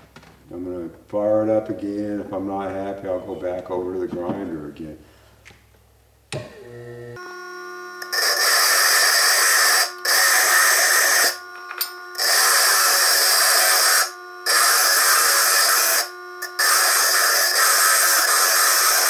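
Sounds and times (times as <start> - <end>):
lathe motor hum: 6.3 - 19.0
stone grinding on spinning drill: 7.9 - 19.0.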